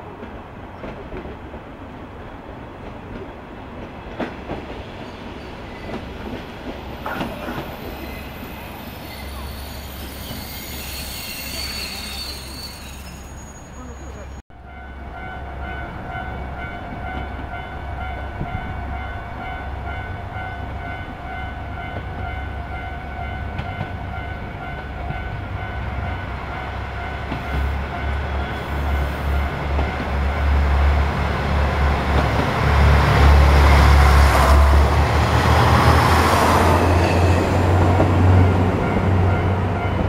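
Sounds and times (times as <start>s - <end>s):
diesel railcar engine rumble: 0.0s - 40.0s
high ringing tone: 9.0s - 14.9s.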